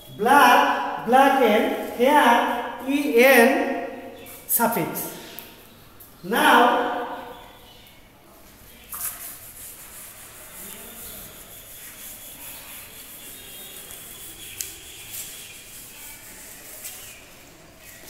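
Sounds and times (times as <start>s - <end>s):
eraser scrubbing a blackboard: 8.9s - 18.0s.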